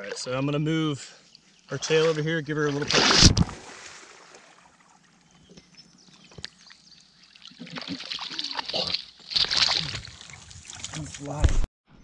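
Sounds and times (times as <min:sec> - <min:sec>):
water splashing and sloshing: 0:01.3 - 0:11.7
loud splash: 0:02.0 - 0:04.7, 0:07.6 - 0:11.2.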